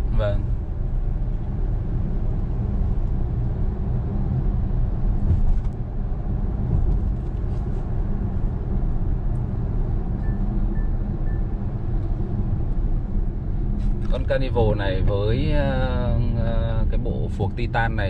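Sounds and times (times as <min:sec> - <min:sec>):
road and tyre rumble: 0:00.0 - 0:18.0
short faint beeps: 0:10.2 - 0:11.5.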